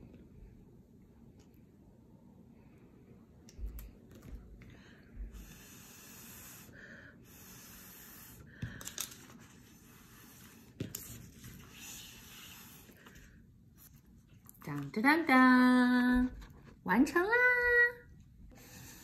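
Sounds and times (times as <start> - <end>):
air puffs through a straw: 5.3 - 8.5.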